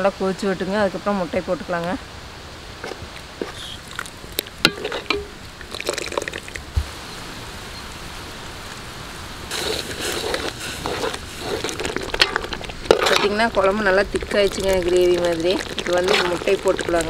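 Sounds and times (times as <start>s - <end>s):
thick gravy bubbling and popping: 2.8s - 6.9s, 9.5s - 17.0s
metal ladle scraping pan: 4.7s - 5.4s, 9.5s - 17.0s.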